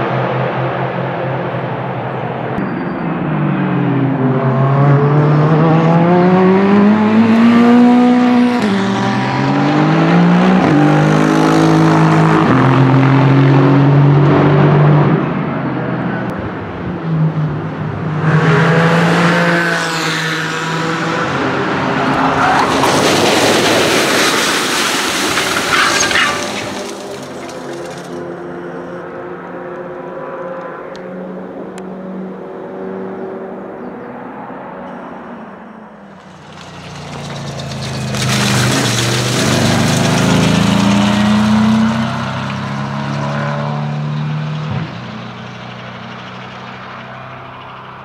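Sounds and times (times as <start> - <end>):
race car engines revving: 0.0 - 48.0
gravel crunching under tyres: 21.6 - 29.0, 35.8 - 43.6.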